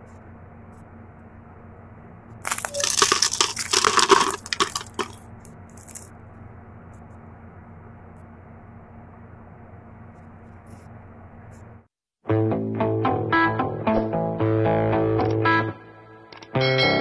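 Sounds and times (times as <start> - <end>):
steady low hum: 0.0 - 11.9
crispy wrapper crunching: 2.4 - 6.1.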